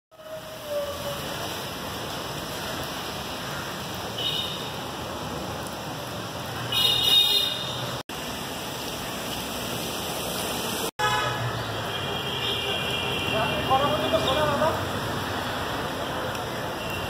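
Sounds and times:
city street traffic: 0:00.1 - 0:17.0
high-pitched car horn toot: 0:11.0 - 0:11.4.

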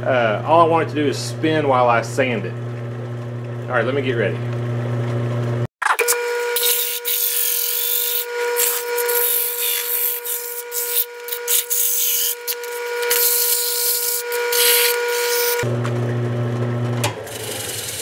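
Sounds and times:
lathe whining: 0:05.9 - 0:15.8, 0:16.6 - 0:18.0
sandpaper rasping on wood: 0:06.6 - 0:15.6.

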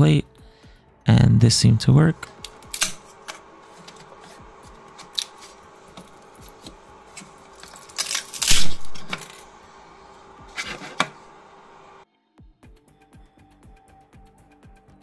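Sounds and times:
faint steady hum: 0:00.0 - 0:12.1.

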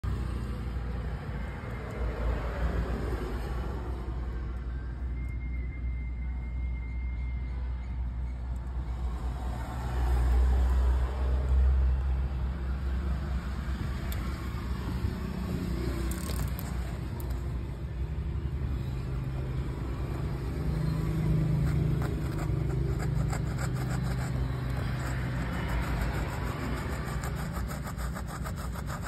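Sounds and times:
vehicle engines rumbling: 0:00.0 - 0:29.0.

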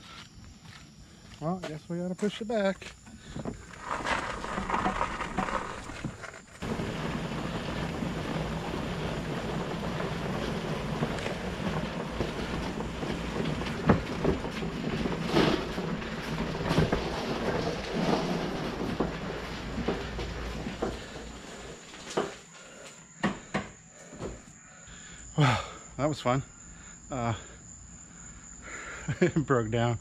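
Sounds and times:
rustling: 0:03.2 - 0:22.8.

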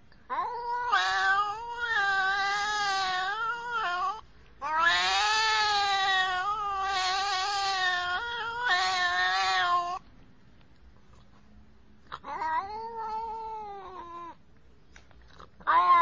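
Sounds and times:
cat yowling: 0:00.3 - 0:10.0, 0:12.2 - 0:14.4, 0:15.6 - 0:16.0.

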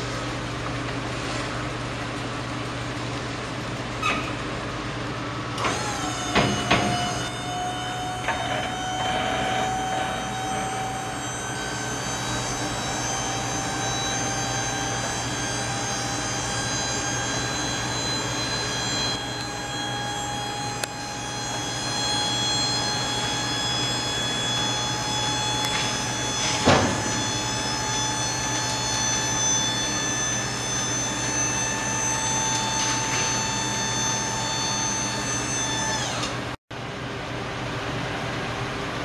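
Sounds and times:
hydraulic hoist whining: 0:05.6 - 0:36.6.

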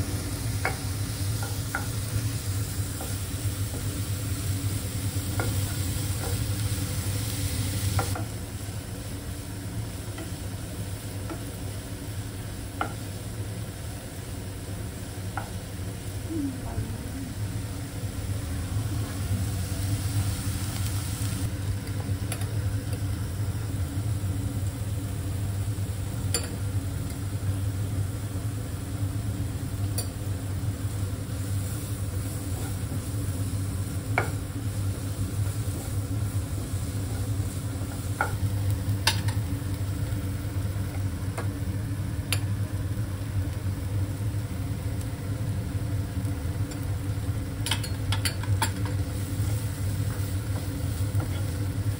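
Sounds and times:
vegetables sizzling in pan: 0:00.0 - 0:51.9
spatula tapping pan: 0:00.6 - 0:02.0, 0:34.1 - 0:34.4.

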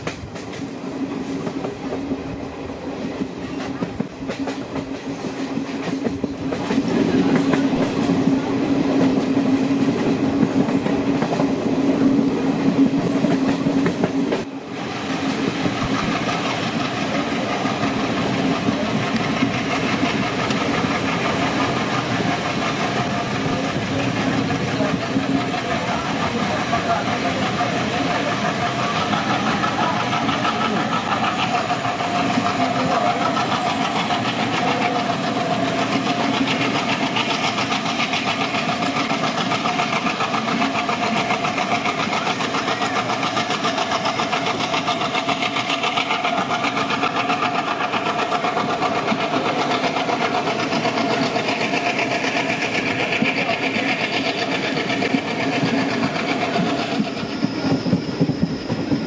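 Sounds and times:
train wheels rumbling and rattling: 0:00.0 - 0:59.0.

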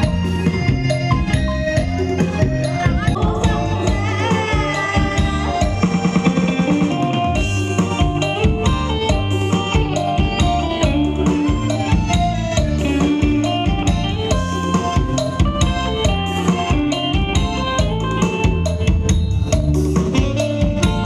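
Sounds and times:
sustained melodic instrument lines: 0:00.0 - 0:09.5
drum kit steady beat: 0:00.0 - 0:21.0.

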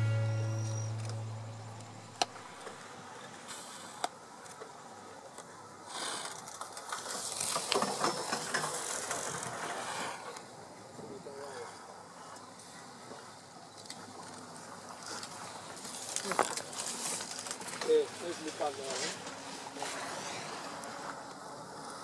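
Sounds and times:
background music: 0:00.0 - 0:01.9.

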